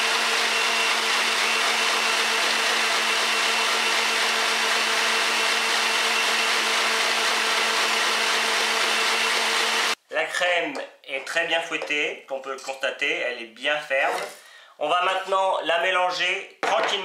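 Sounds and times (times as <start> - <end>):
electric stand mixer whisking cream: 0.0 - 10.0.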